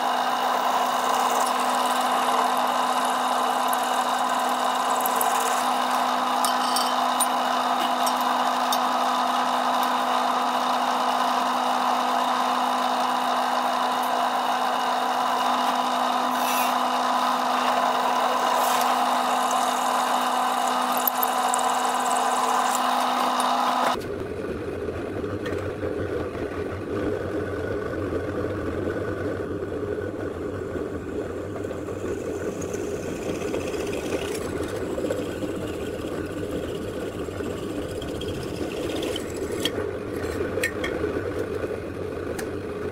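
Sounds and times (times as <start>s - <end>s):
drill press motor humming: 0.0s - 24.0s, 30.8s - 42.5s
drill bit grinding through steel: 0.2s - 11.6s, 13.0s - 24.0s, 32.6s - 40.8s.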